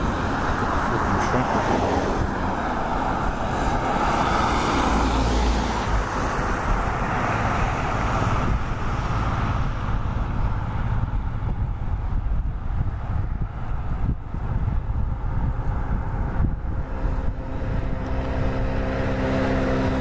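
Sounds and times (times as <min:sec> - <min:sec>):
distant road traffic rumble: 0:00.0 - 0:20.0.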